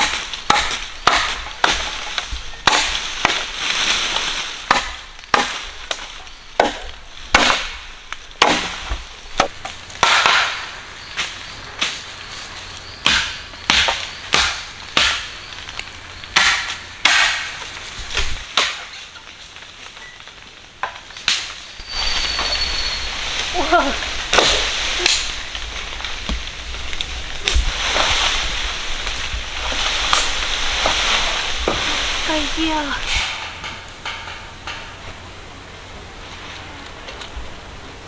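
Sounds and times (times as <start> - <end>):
blade chopping bamboo: 0.0 - 3.6, 4.6 - 7.8, 8.4 - 10.7, 16.4 - 17.6
leaves rustling and swishing: 0.0 - 38.0.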